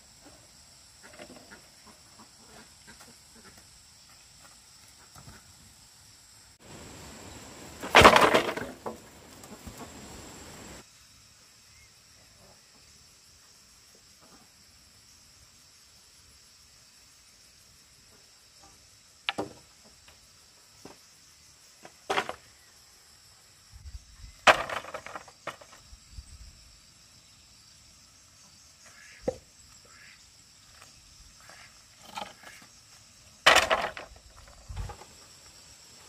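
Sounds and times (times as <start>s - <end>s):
high-pitched insect chorus: 0.0s - 36.0s.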